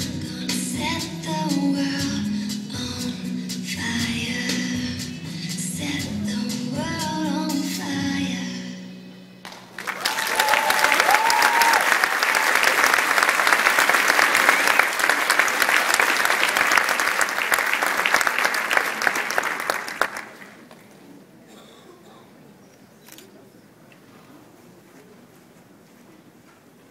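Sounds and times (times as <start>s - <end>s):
audience applauding: 9.4s - 20.8s.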